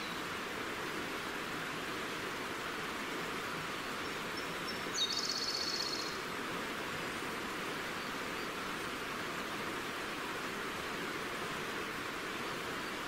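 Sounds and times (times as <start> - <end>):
stream rushing: 0.0 - 13.0
songbird trill: 4.4 - 6.2.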